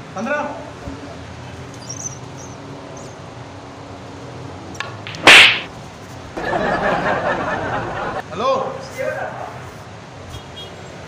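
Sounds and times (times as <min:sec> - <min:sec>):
hand slapping a person: 0:04.8 - 0:05.7.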